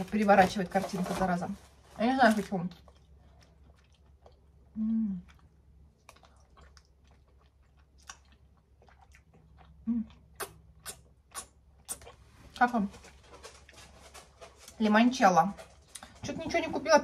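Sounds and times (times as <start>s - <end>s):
person chewing soft food: 2.7s - 14.0s
closed-mouth hum: 4.2s - 6.5s.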